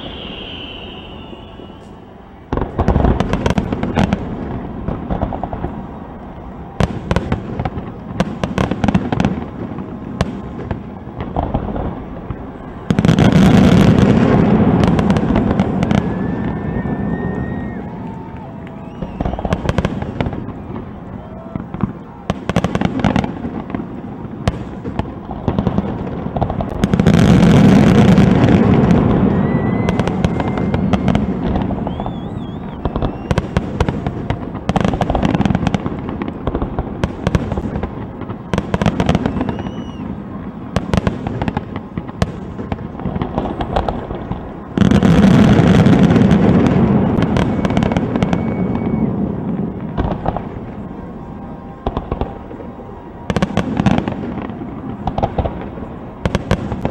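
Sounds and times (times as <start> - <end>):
firework shells bursting: 0.0 - 4.2.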